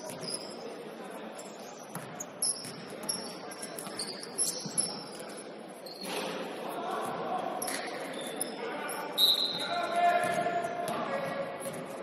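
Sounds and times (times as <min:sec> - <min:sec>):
sneakers squeaking on court: 0:00.0 - 0:06.4
players' voices: 0:00.0 - 0:12.0.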